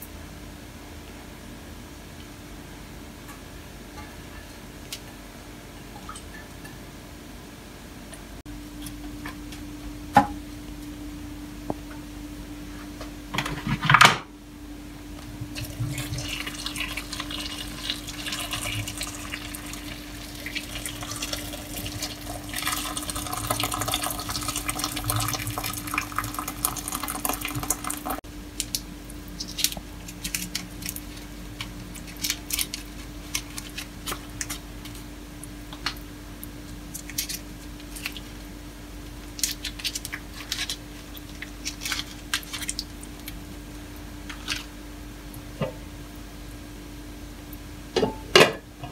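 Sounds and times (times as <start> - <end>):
steady low hum: 0.0 - 48.9
water pouring into a pot: 15.6 - 28.2.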